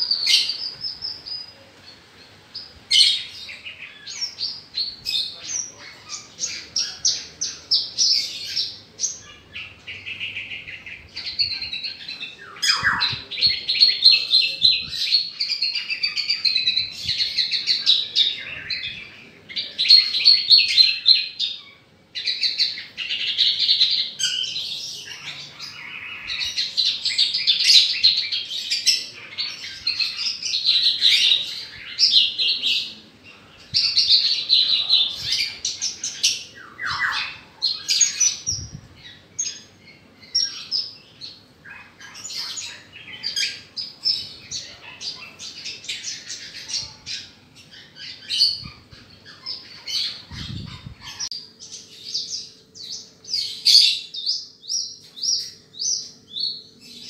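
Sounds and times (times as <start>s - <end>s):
bird singing rapid trills: 3.0s - 18.9s.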